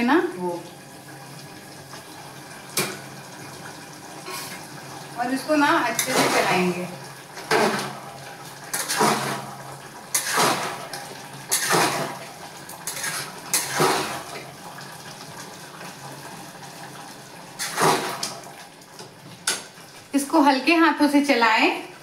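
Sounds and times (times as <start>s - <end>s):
spoon scraping metal pot: 8.7s - 9.4s, 10.1s - 10.6s, 11.5s - 12.0s, 12.8s - 14.1s.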